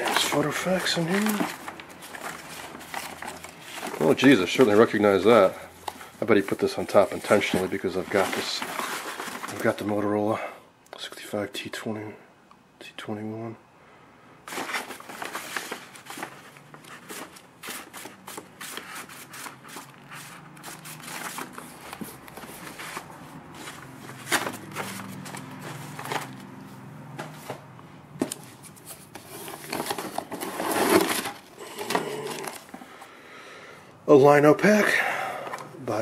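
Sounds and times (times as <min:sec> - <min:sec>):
pages riffled: 0:00.0 - 0:09.9, 0:14.5 - 0:26.6, 0:28.2 - 0:32.8
paper rustling and flapping: 0:00.0 - 0:10.0, 0:14.5 - 0:32.8.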